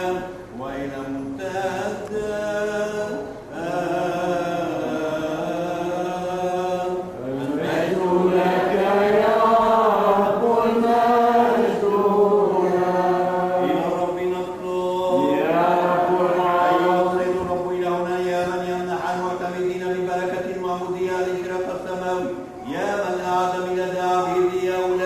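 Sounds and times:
voice chanting long notes: 3.5 - 17.5.

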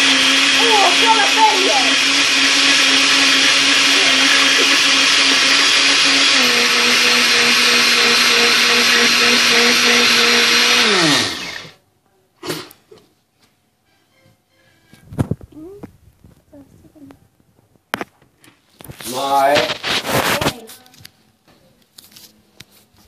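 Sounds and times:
blender motor running: 0.0 - 11.8.

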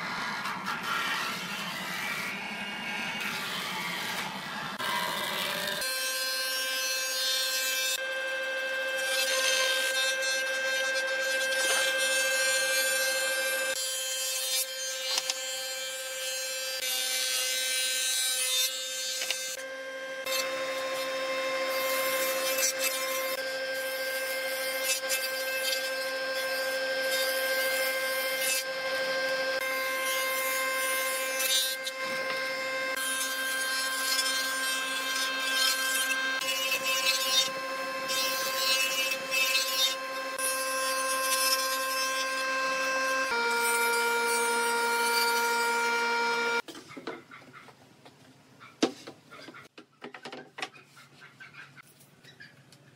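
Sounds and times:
planer motor whine: 34.2 - 46.6.

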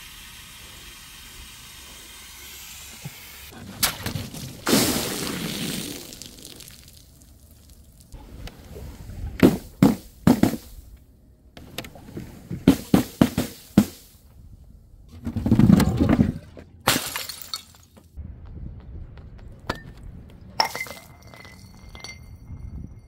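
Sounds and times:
glass bottles smashing: 16.9 - 17.9, 20.6 - 22.4
glass tinkling: 20.6 - 23.0.

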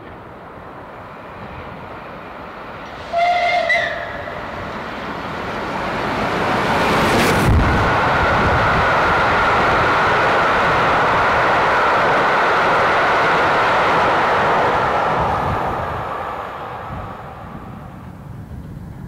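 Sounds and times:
steam locomotive rumbling: 0.0 - 19.0
steam locomotive whistle: 3.0 - 4.4.

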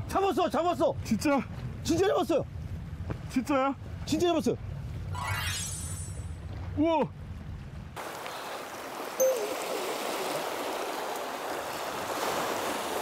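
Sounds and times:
sea water washing over rocks: 8.0 - 13.0.

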